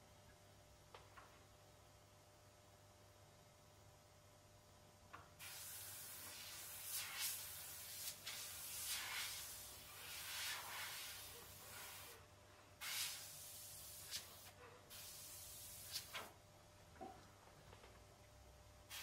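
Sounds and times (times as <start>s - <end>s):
airbrush spraying hiss: 5.4s - 12.2s, 12.8s - 16.4s.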